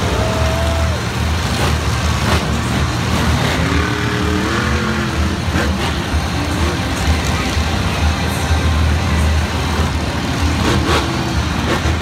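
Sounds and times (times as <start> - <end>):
truck engines rumbling: 0.0 - 12.0.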